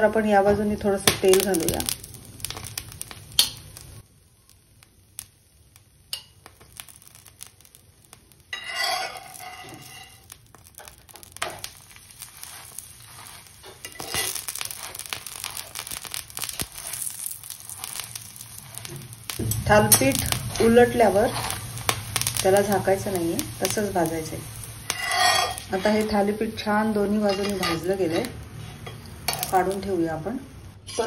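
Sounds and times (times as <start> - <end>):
oil sizzling and crackling: 0.0 - 31.0
metal spatula scraping a pan: 8.5 - 19.0, 24.8 - 26.2, 26.9 - 29.6.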